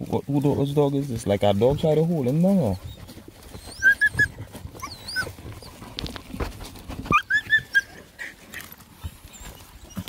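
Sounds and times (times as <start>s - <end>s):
dog whining and whimpering: 2.6s - 5.8s, 7.0s - 10.0s
scraping and knocks on rock and wood: 4.6s - 7.4s.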